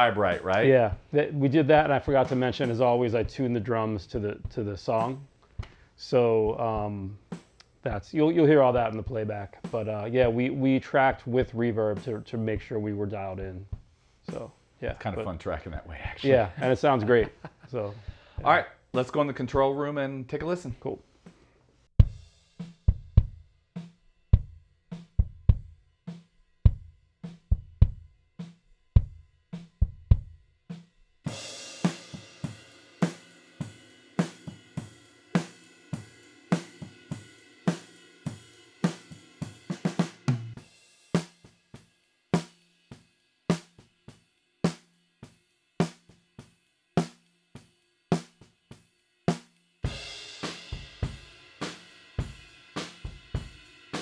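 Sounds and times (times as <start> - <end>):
drum kit with cymbals: 0.0 - 54.0
snare drum cracking: 2.1 - 2.9.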